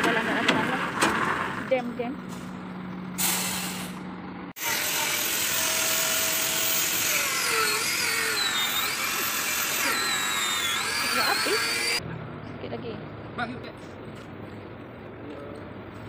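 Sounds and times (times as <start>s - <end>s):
angle grinder whining: 4.6s - 12.0s.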